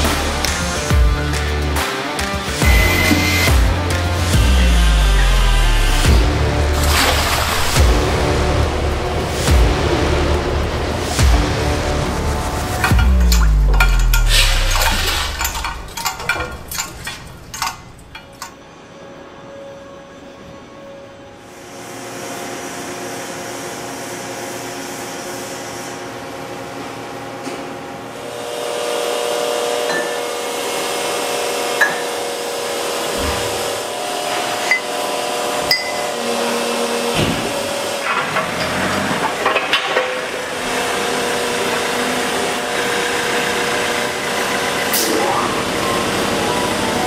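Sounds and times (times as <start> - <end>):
machinery humming: 0.0 - 47.0
metal clanks and knocks: 12.7 - 18.6, 37.1 - 40.4.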